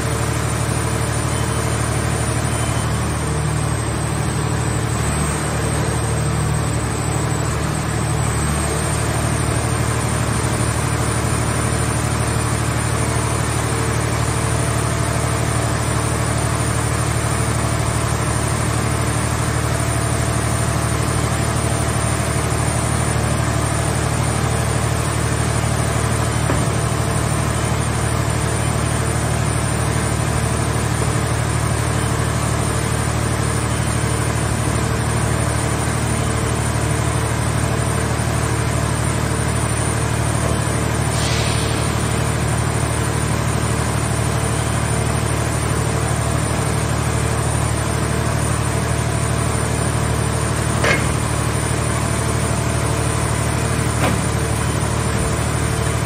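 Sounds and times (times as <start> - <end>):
hydraulic power unit drone: 0.0 - 56.0.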